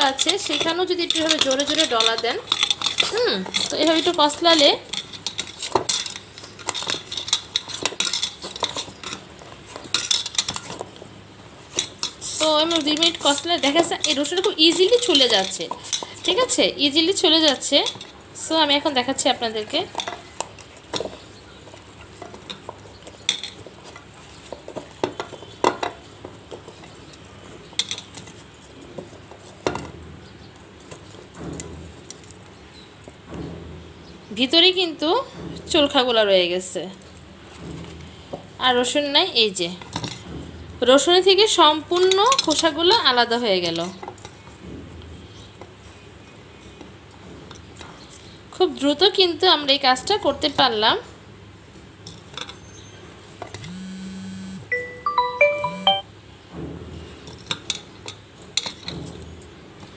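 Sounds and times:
garlic rattling in peeler tube: 0.0 - 33.2, 38.7 - 44.6.

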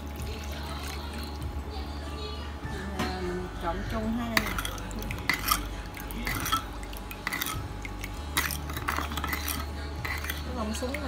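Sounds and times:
liquid swishing: 4.3 - 11.0
spoon scraping wooden bowl: 4.3 - 11.0.

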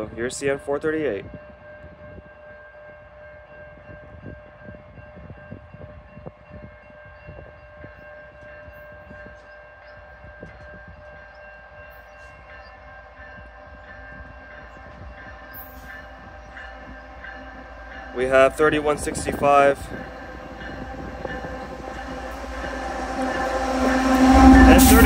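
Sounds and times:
locomotive air horn chord: 16.7 - 25.0.

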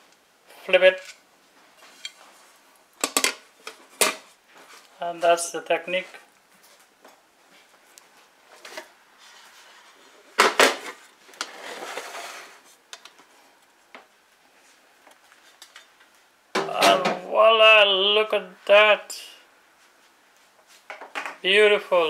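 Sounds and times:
scraping rustle: 7.5 - 13.5.

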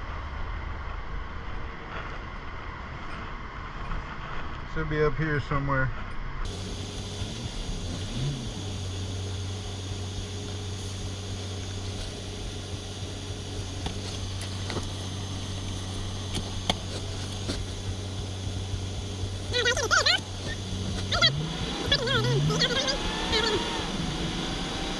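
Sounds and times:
diesel truck engine running: 6.5 - 24.9.

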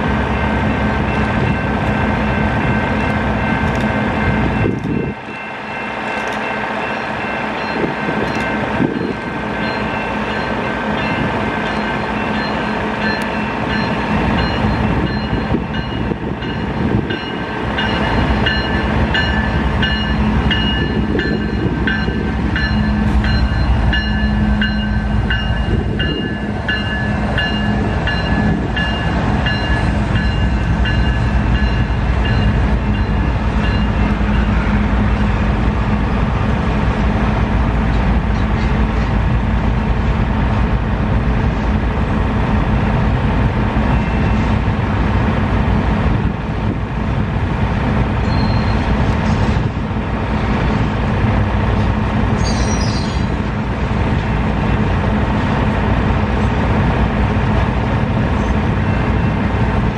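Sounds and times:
freight train wheels rumbling: 0.0 - 59.9.

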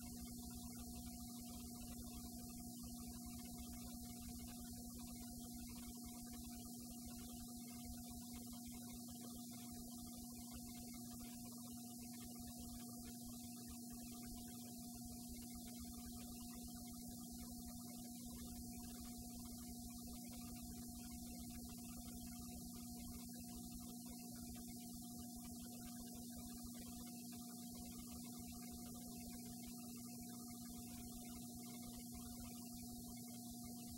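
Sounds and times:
electrical hum: 0.0 - 33.9.

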